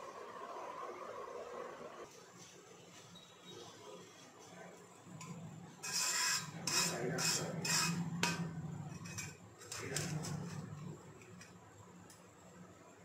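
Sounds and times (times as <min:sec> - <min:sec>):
metal bowl scraping in salt: 0:05.3 - 0:11.6.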